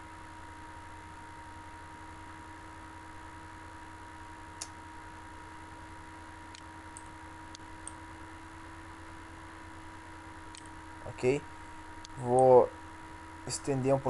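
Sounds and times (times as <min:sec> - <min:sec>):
electrical hum and hiss: 0:00.0 - 0:14.0
computer mouse clicks: 0:10.5 - 0:10.7.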